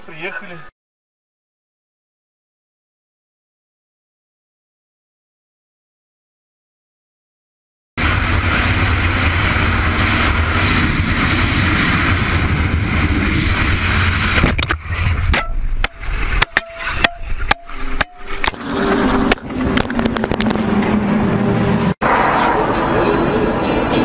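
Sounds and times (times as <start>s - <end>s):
car engine and road rumble: 8.0s - 24.0s
sharp clicks and knocks: 14.4s - 18.6s.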